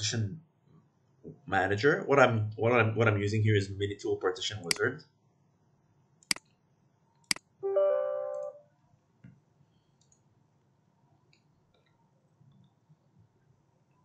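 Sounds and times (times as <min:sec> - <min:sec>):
computer chime: 0:07.6 - 0:08.6
soft ticks: 0:10.0 - 0:10.3.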